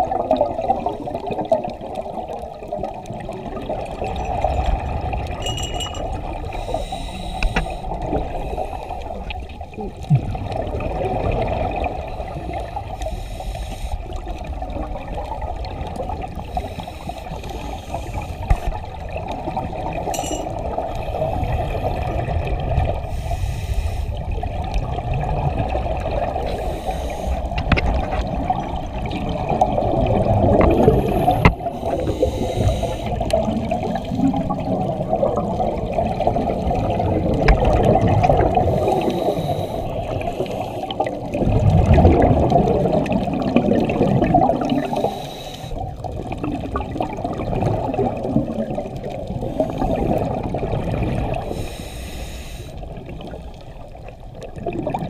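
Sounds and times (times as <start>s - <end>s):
underwater bubbles gurgling: 0.0s - 55.0s.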